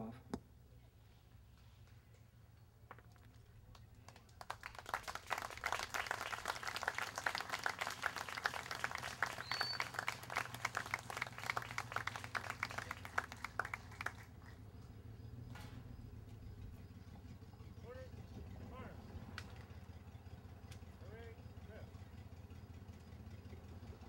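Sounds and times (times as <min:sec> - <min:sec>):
small crowd applauding: 0:03.1 - 0:14.9.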